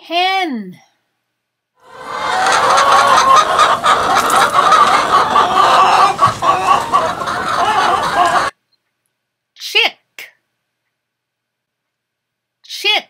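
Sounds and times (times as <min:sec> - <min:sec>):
hens clucking: 0:01.8 - 0:08.6.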